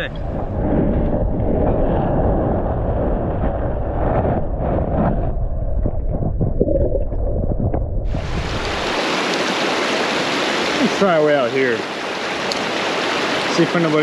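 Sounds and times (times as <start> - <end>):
wind buffeting microphone: 0.0 - 9.7.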